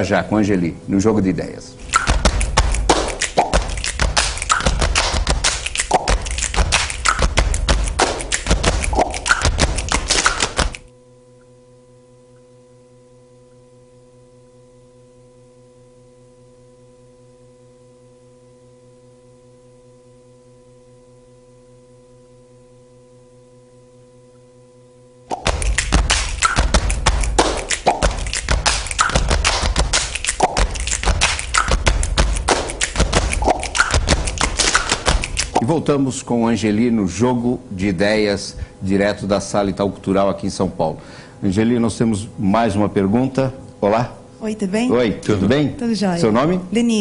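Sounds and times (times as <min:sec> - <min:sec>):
low electrical hum: 0:00.0 - 0:47.0
percussive bumper music: 0:01.8 - 0:10.8, 0:25.3 - 0:35.6.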